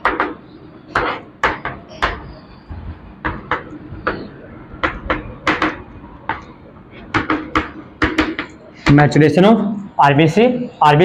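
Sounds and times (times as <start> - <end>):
chalk writing on blackboard: 0.9 - 2.2.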